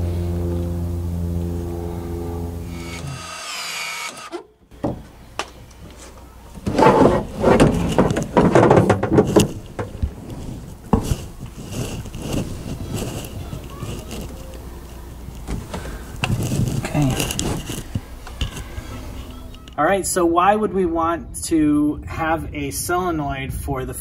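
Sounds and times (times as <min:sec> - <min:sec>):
steady low hum: 0:00.0 - 0:19.5
handling knocks and clicks: 0:04.3 - 0:18.7.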